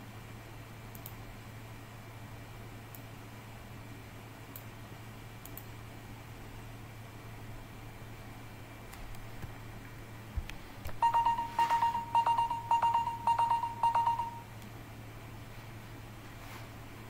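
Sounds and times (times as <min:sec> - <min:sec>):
electronic beeping alarm: 0:11.0 - 0:14.5.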